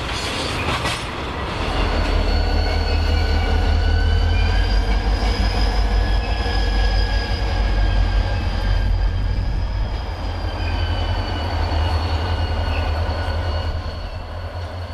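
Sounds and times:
high-pitched wheel squeals: 0:01.8 - 0:14.7.

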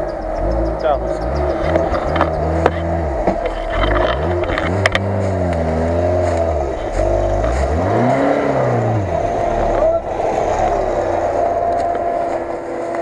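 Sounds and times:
sharp clicks: 0:00.0 - 0:05.7
car engine revving: 0:00.0 - 0:13.0.

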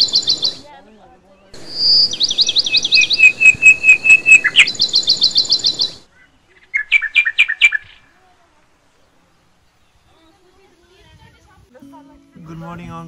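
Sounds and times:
birds chirping: 0:00.0 - 0:11.2.

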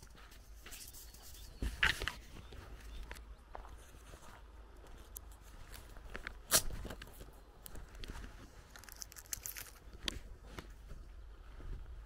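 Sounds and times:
footsteps crunching on dirt: 0:00.0 - 0:08.7, 0:09.4 - 0:12.0.

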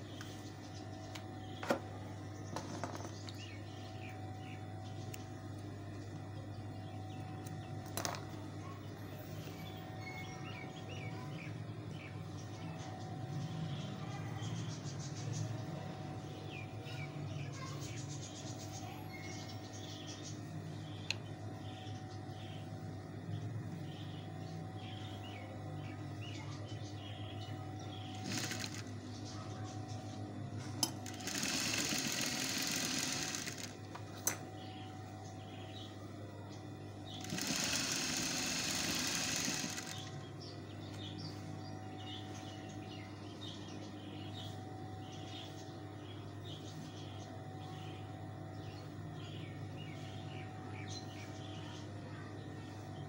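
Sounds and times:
steady low hum: 0:00.0 - 0:53.0
faint bird chirps: 0:08.6 - 0:30.4
sewing machine running: 0:27.9 - 0:29.0, 0:30.8 - 0:34.4, 0:37.1 - 0:40.3.

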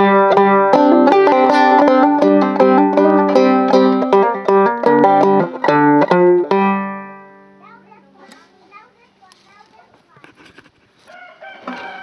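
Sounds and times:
banjo picking a melody: 0:00.0 - 0:08.0.

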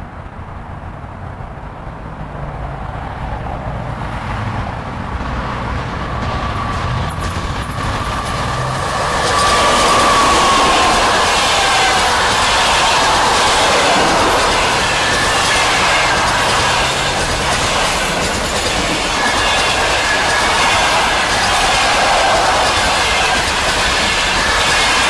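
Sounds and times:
train wheels rumbling on rails: 0:00.1 - 0:25.0
locomotive whine: 0:05.9 - 0:25.0.

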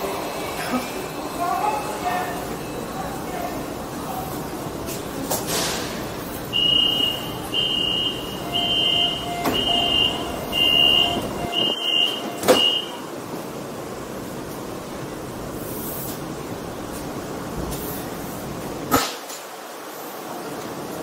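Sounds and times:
train doors shutting: 0:00.0 - 0:19.8
high warning beeps: 0:06.5 - 0:13.0.

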